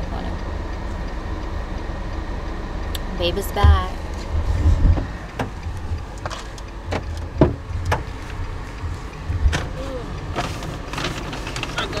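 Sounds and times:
car engine low rumble: 0.0 - 12.0
knocks and clicks in car: 2.9 - 12.0.

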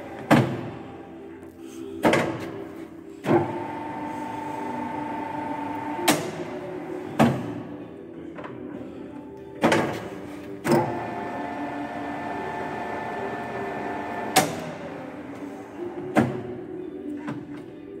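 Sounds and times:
lathe levers clunking: 5.9 - 7.6, 9.6 - 11.1, 13.4 - 15.4
motor hum: 10.6 - 15.6
spindle gearing whine: 10.7 - 15.8.

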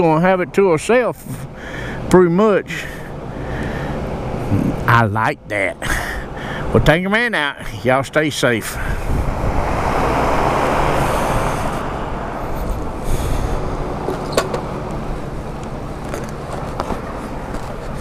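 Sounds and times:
low hum of machinery: 0.0 - 18.0
rushing noise: 8.6 - 17.4.

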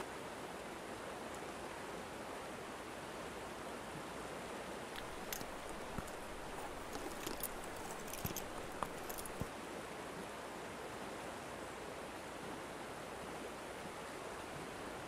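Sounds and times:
small clicks and pops: 5.0 - 9.5.

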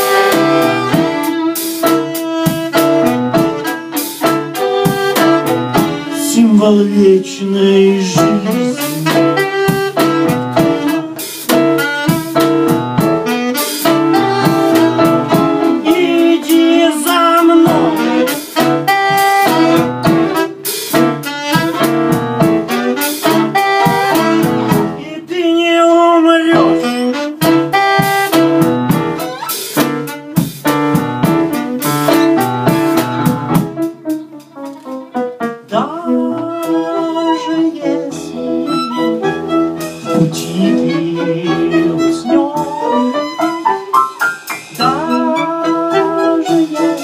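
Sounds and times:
saxophone wavering notes: 0.0 - 20.6, 26.6 - 30.4, 36.1 - 43.9, 44.8 - 47.0
electric keyboard: 0.0 - 25.3, 26.2 - 47.0
drum kit steady beat: 0.0 - 36.9, 38.0 - 47.0.

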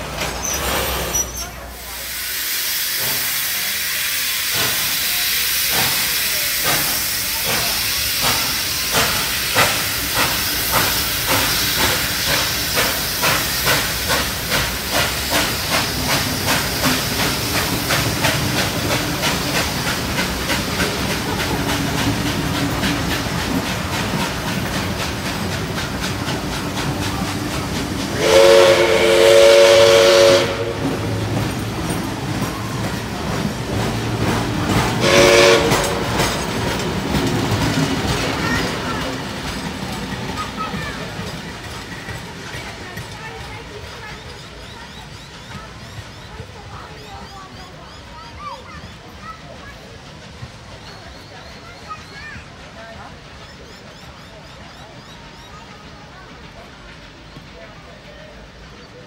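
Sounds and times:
locomotive exhaust chuffs: 0.0 - 46.6
steam hissing: 0.0 - 59.0
steam whistle chord: 28.2 - 30.8, 35.0 - 36.0.

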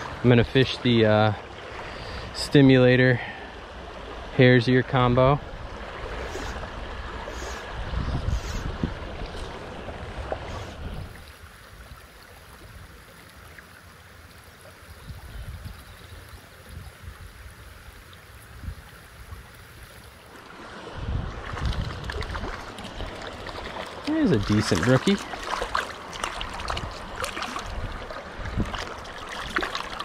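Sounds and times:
stream water running over riffles: 0.0 - 30.0
wind buffeting microphone: 5.4 - 11.2, 20.8 - 23.6, 26.4 - 29.7.

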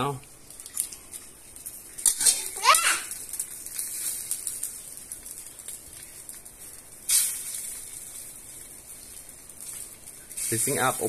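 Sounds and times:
oil sizzling in a wok: 0.1 - 11.0.

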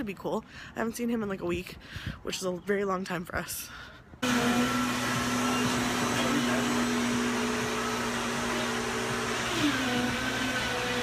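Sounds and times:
drink blender whining: 4.2 - 11.0.

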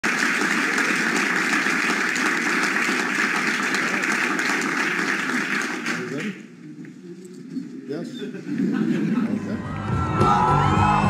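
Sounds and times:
large audience applauding: 0.0 - 6.5, 9.4 - 11.0.

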